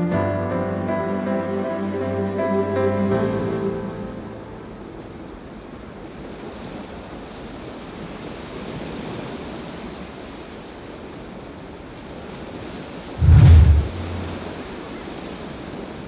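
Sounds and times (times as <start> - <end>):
waves breaking: 5.0 - 16.0.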